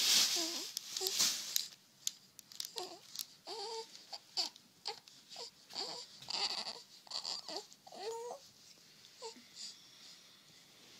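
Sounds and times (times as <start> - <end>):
infant whining: 2.7 - 8.5, 9.2 - 9.8.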